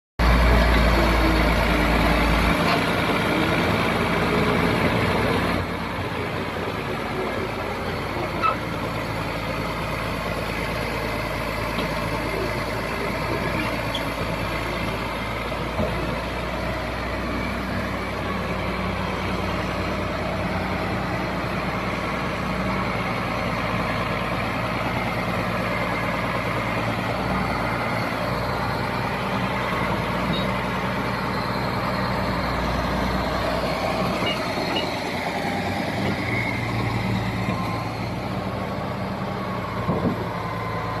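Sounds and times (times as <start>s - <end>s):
bulldozer diesel engine running: 0.2s - 41.0s.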